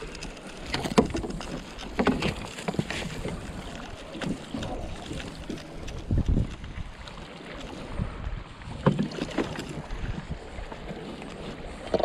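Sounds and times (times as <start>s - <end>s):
water splashing: 0.0s - 12.0s.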